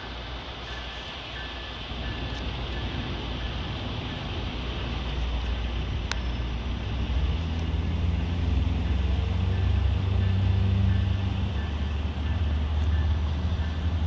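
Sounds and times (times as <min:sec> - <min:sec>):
diesel locomotive engine drone: 0:00.0 - 0:14.0.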